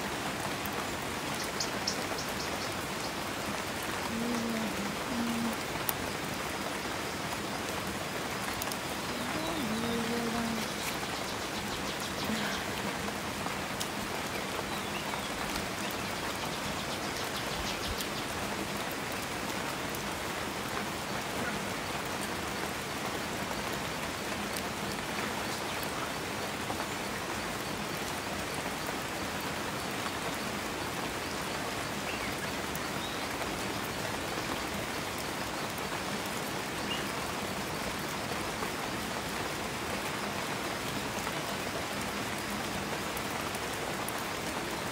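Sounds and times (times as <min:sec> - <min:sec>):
rushing water: 0:00.0 - 0:44.9.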